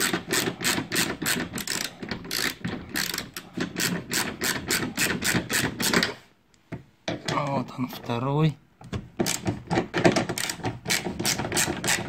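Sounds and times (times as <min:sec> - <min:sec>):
ratchet wrench clicking: 0:00.1 - 0:05.4.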